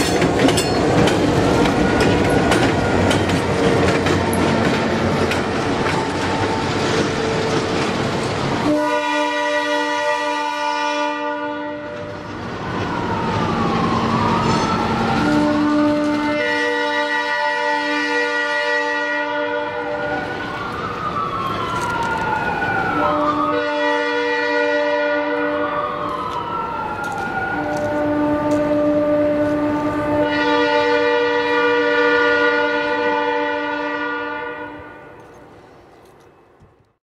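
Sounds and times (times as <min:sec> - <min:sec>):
siren wailing: 0:01.4 - 0:07.8, 0:08.6 - 0:34.4
air horn blasts: 0:08.6 - 0:12.1, 0:15.2 - 0:20.0, 0:23.0 - 0:25.8, 0:27.6 - 0:35.1.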